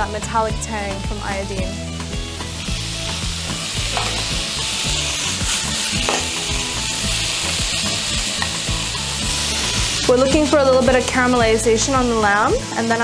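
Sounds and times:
meat sizzling in hot oil: 1.8s - 13.0s
metal tongs clicking on pan: 3.9s - 4.3s, 6.0s - 6.4s.

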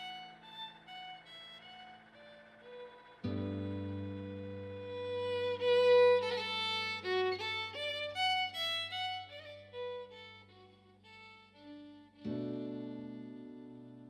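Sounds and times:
low drone: 0.0s - 10.7s
fiddle playing quick notes: 0.0s - 13.6s.

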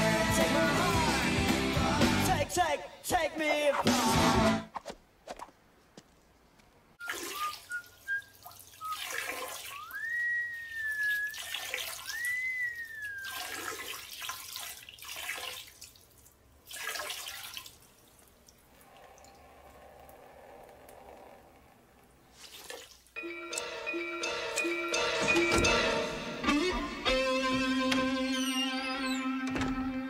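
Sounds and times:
man whistling a tune: 7.0s - 13.5s
water splashing: 7.0s - 19.4s, 22.3s - 23.2s.

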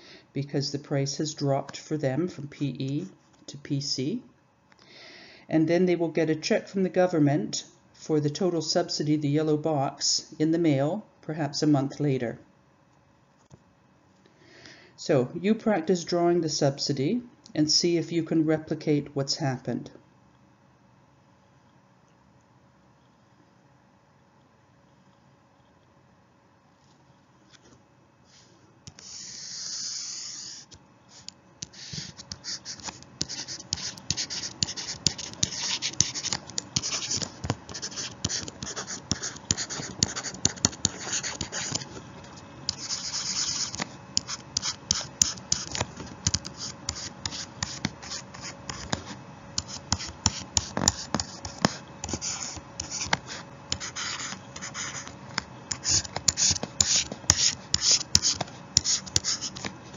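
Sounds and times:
pen scratching on paper: 28.9s - 59.8s.

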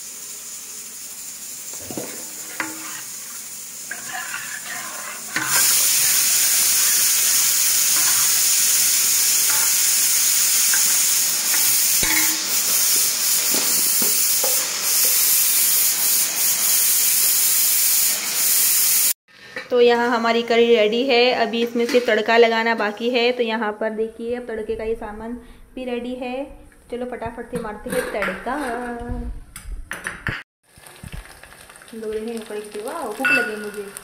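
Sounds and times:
loud steady hiss: 0.0s - 19.2s
spoon stirring and clinking in pot: 33.2s - 33.8s.

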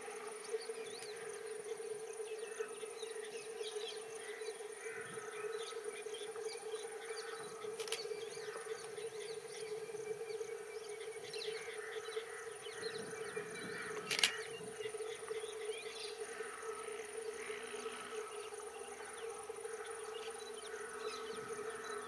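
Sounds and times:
insect buzzing drone: 0.0s - 22.0s
sharp click: 14.0s - 14.5s.

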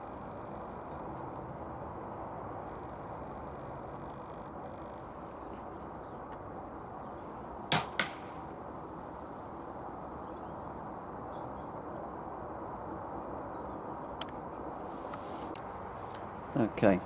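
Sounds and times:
pellet striking target: 7.7s - 8.3s
air rifle shot crack: 7.7s - 8.5s.

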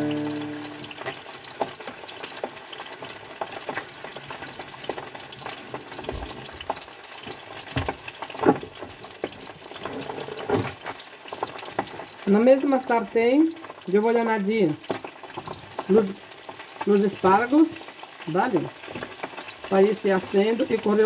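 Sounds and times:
fish sizzling in a pan: 0.0s - 21.0s.

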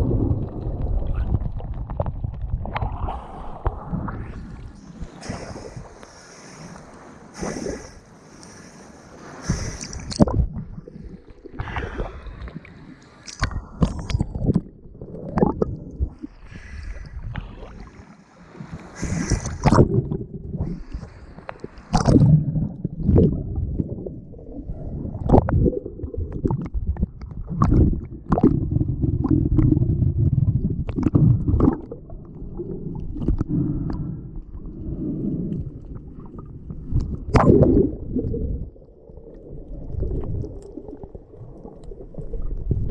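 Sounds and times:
water splashing: 0.0s - 24.0s
muffled underwater rumble: 0.0s - 42.9s.

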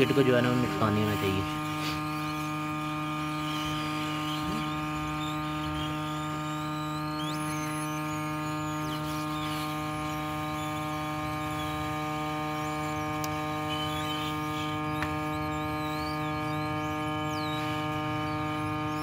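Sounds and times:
hot air gun humming: 0.0s - 19.0s
small click: 15.0s - 15.2s.

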